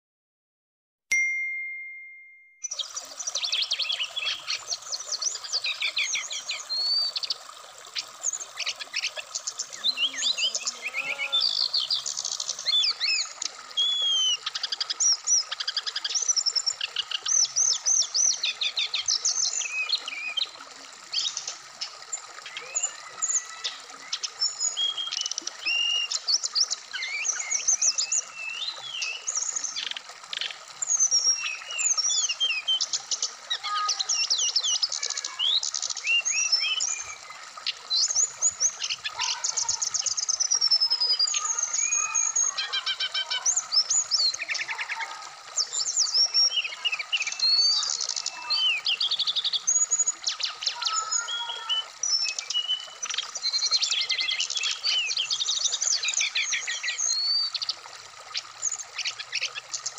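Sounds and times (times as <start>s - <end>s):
flowing stream: 1.1s - 59.9s.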